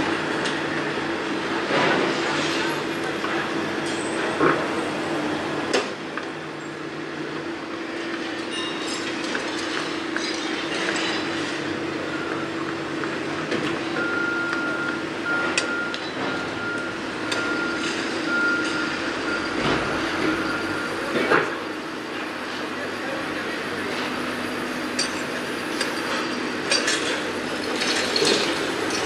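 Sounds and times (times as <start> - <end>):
construction machinery humming: 0.0 - 29.0
reversing alarm beeps: 12.1 - 12.7, 14.0 - 21.9.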